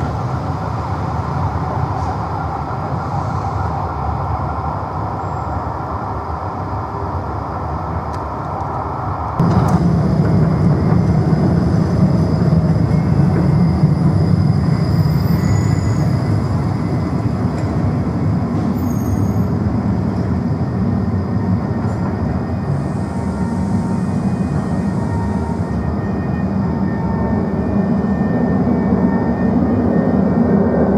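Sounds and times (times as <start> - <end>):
tram rumble on rails: 0.0 - 30.9
high-pitched wheel squeals: 10.4 - 17.2, 18.6 - 19.6.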